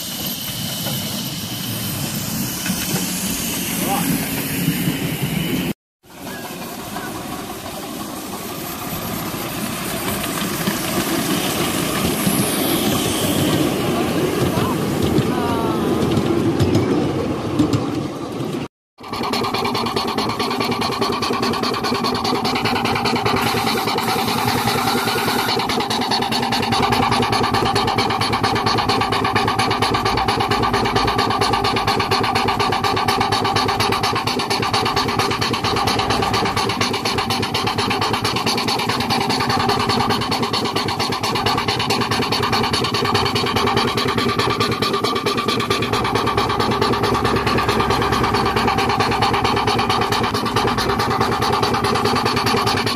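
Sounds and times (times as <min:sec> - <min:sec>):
steam engine mechanical clatter: 0:00.0 - 0:52.9.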